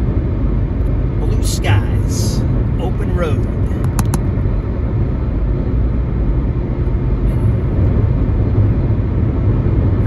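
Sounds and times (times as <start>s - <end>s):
road and tyre rumble: 0.0s - 10.0s.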